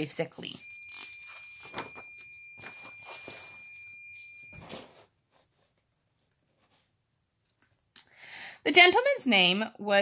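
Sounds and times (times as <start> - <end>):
thin high tone: 0.5 - 4.9
paper page rustling: 1.0 - 5.7.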